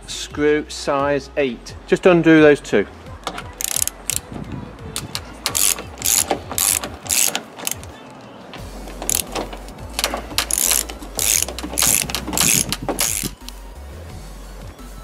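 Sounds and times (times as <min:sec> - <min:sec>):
hand ratchet clicking: 0:03.6 - 0:04.3, 0:05.0 - 0:07.9, 0:08.9 - 0:13.6.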